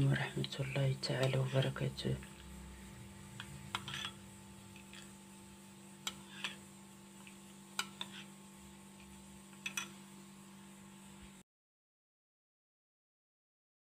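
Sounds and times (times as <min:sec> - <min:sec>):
steady low hum: 0:00.0 - 0:11.4
spoon clinking and scraping in bowl: 0:03.4 - 0:05.2, 0:07.8 - 0:08.3, 0:09.6 - 0:10.0.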